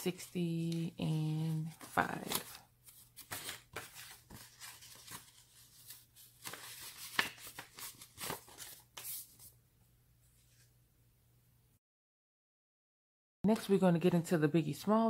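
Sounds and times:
paper and banknotes rustling: 0.0 - 9.5.

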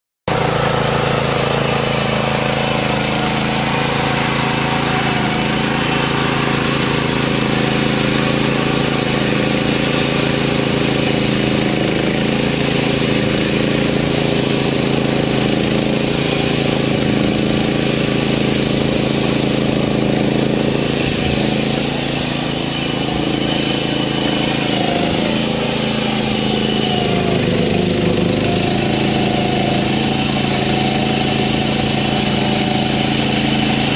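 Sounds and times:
tractor engine running under load: 0.3 - 33.9
mechanical rattle: 3.8 - 11.4.

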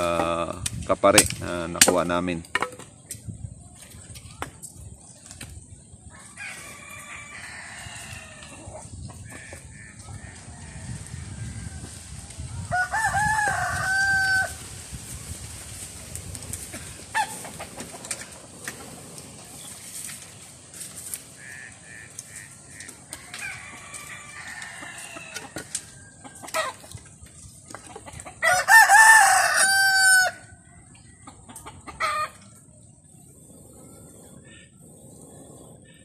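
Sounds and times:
dry wood snapping: 0.5 - 3.3, 22.0 - 27.9
rooster crowing: 6.1 - 8.8, 9.5 - 14.6, 22.8 - 26.7, 28.4 - 30.6.

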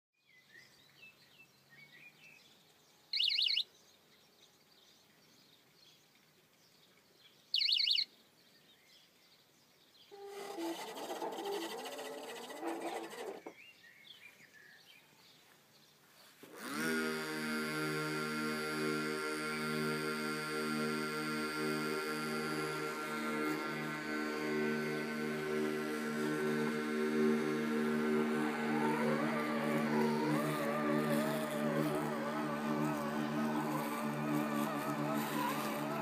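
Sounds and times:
birds chirping: 0.3 - 16.1, 20.7 - 36.0
mower motor whining: 10.1 - 13.6, 16.4 - 36.0.

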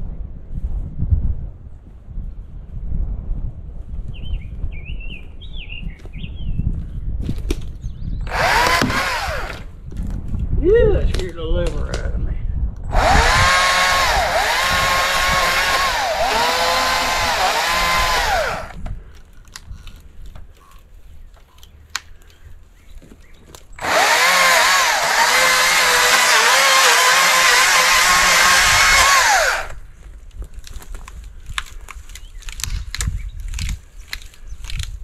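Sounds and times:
chainsaw cutting wood: 8.3 - 9.7, 12.9 - 18.8, 23.8 - 29.8.

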